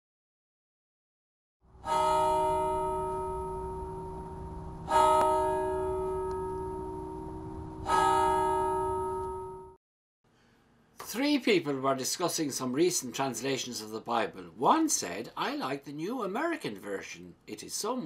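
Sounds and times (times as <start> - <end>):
bell ringing: 1.8 - 9.8.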